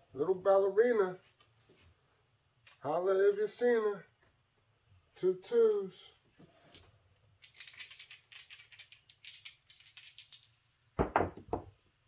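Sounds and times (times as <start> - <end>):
casino chips clicking: 7.4 - 10.6.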